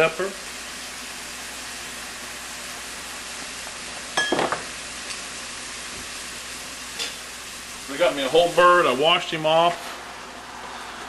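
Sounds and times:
onion and garlic sizzling in butter: 0:00.0 - 0:09.1.

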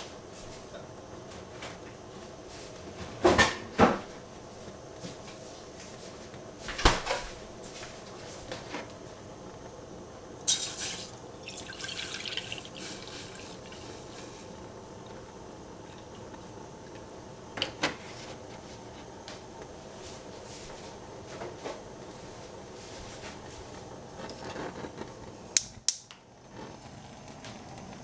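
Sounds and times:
milk splashing into saucepan: 0:10.5 - 0:14.3.

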